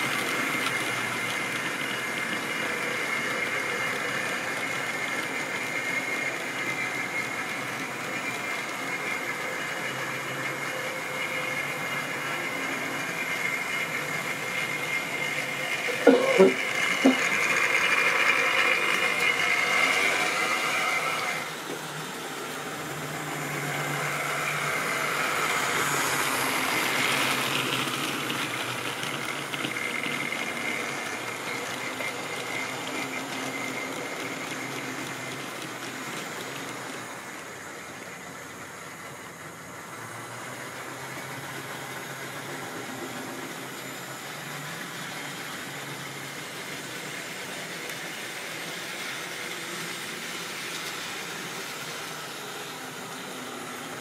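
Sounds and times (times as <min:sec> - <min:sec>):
model locomotive motor whining: 0:00.0 - 0:54.0
wheels rattling on rails: 0:00.0 - 0:54.0.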